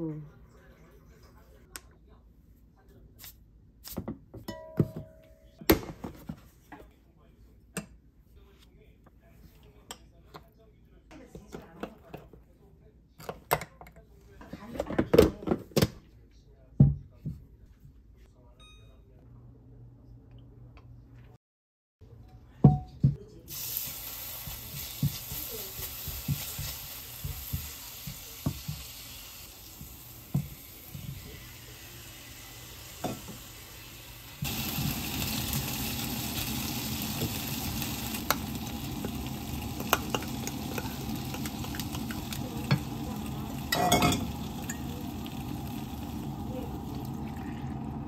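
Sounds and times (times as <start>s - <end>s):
potatoes sizzling in oil: 23.5s - 47.3s
spoon clacking on pan: 38.2s - 42.9s, 43.7s - 44.9s.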